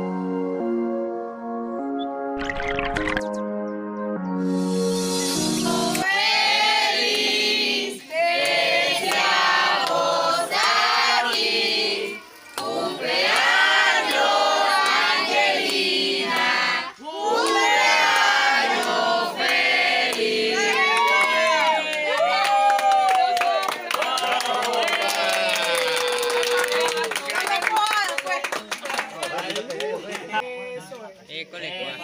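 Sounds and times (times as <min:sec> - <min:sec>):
group singing birthday song: 0:05.2 - 0:21.6.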